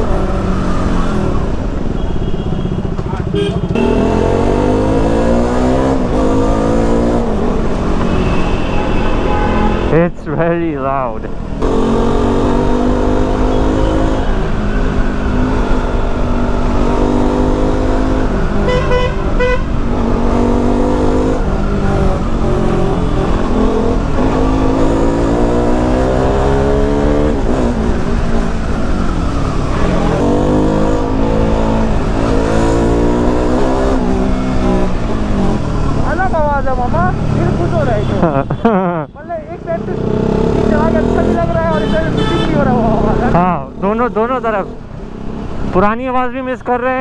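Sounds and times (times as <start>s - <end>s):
vehicle horn: 1.9s - 4.0s, 8.0s - 10.0s, 18.6s - 19.7s, 41.7s - 42.8s
motorcycle engine revving: 2.8s - 10.1s, 11.4s - 45.8s.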